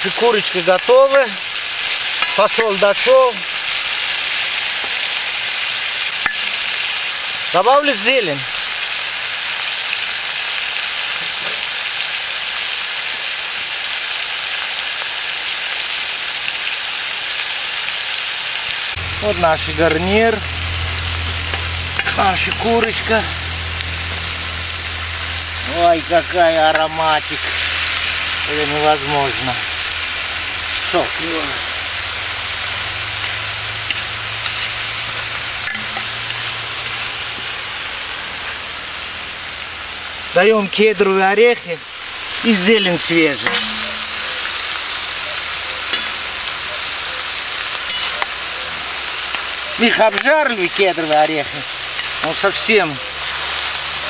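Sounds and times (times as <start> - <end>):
food sizzling in oil: 0.0 - 54.0
metal spoon clicking on pan: 35.7 - 36.2, 43.5 - 44.5, 45.9 - 46.2, 47.9 - 48.3.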